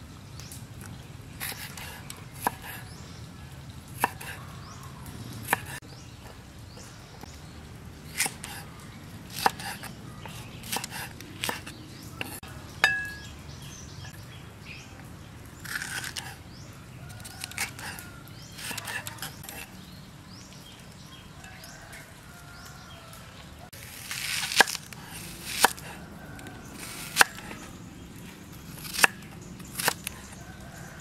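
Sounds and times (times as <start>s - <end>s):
metallic clink: 12.8s - 13.3s
knife crunching through peppers: 15.6s - 16.4s, 17.2s - 19.7s, 23.8s - 26.0s.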